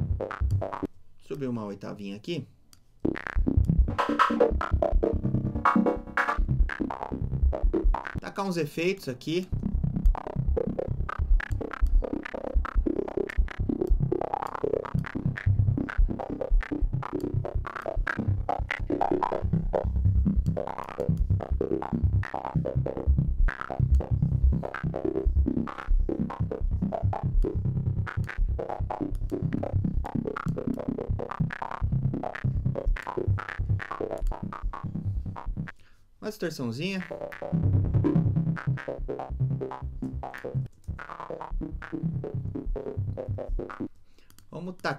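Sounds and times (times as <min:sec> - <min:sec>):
stuttering synth pulses: 0:09.5 - 0:35.7.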